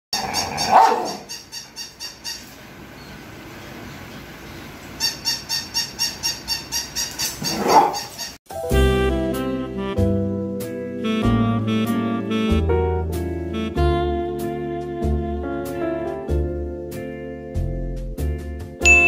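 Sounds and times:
robot toy dog electronic yaps: 0:00.2 - 0:02.5, 0:05.0 - 0:08.3.

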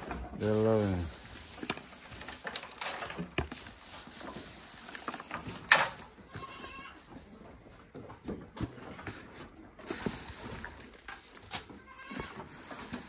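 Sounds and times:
rustling of dry stalks: 0:00.0 - 0:07.5, 0:08.6 - 0:13.0
goat bleat: 0:06.3 - 0:07.0, 0:11.7 - 0:12.4.

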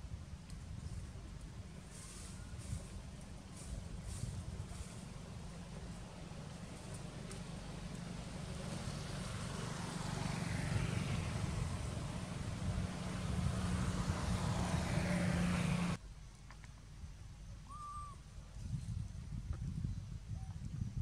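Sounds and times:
vehicle engine humming: 0:00.0 - 0:16.6.

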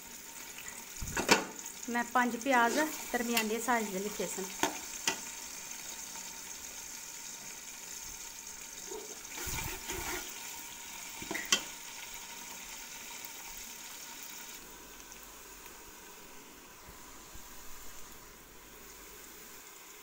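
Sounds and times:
onions sizzling in oil: 0:00.0 - 0:20.0
spoon scraping and stirring: 0:09.0 - 0:10.4.

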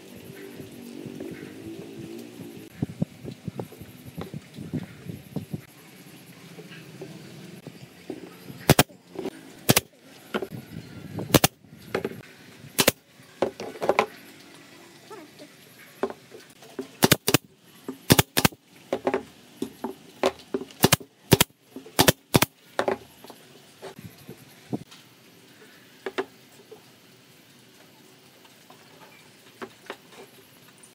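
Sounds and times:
nail gun shots: 0:08.7 - 0:08.9, 0:09.7 - 0:09.9, 0:11.3 - 0:11.5, 0:12.8 - 0:13.0, 0:17.0 - 0:17.4, 0:18.1 - 0:18.6, 0:20.8 - 0:22.5.

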